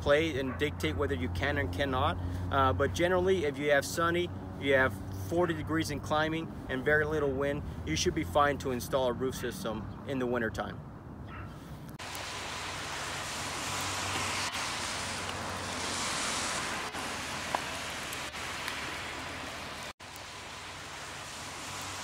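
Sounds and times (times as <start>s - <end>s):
outdoor ambience hiss: 11.5s - 22.0s.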